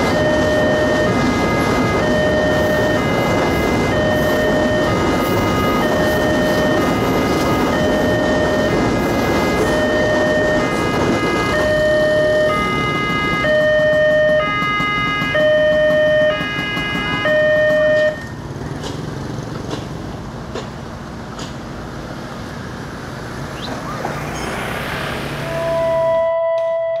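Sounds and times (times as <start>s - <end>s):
motorcycle passing: 22.8s - 26.2s.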